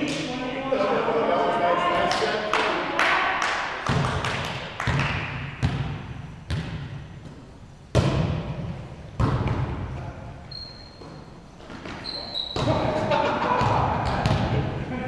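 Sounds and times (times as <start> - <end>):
volleyball thudding on gym floor: 7.9 - 9.8.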